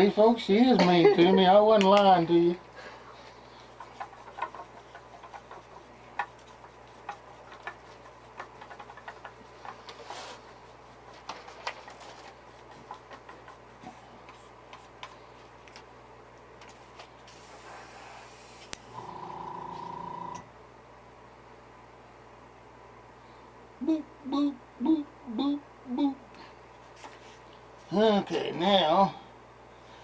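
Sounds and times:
short hiss: 17.3s - 18.8s.

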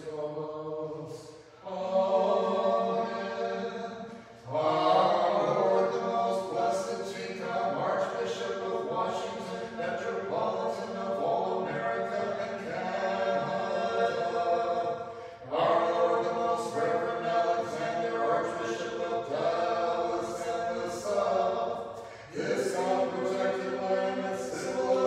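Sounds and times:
choir singing a cappella: 0.0s - 25.0s
short breaths: 15.0s - 15.5s, 21.9s - 22.4s.

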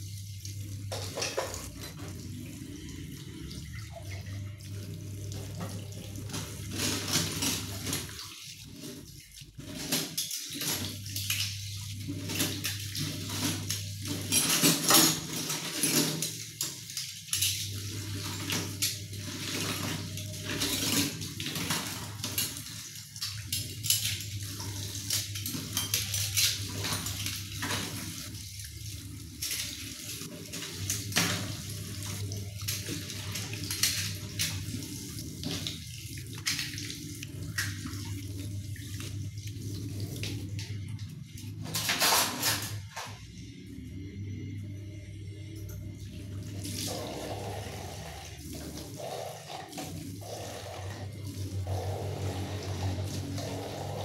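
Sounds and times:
dishes clinking: 0.9s - 2.1s
water splashing: 16.0s - 41.0s.

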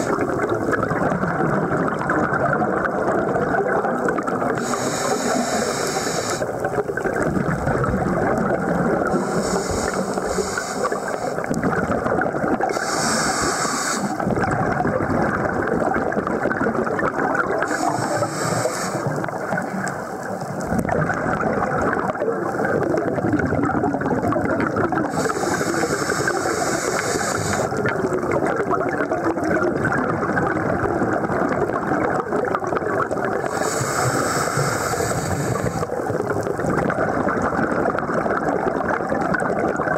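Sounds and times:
underwater regulator bubbling: 0.0s - 39.9s
regulator hiss: 4.6s - 6.6s, 9.1s - 11.5s, 12.7s - 14.2s, 17.6s - 19.2s, 25.1s - 27.8s, 33.4s - 36.0s.

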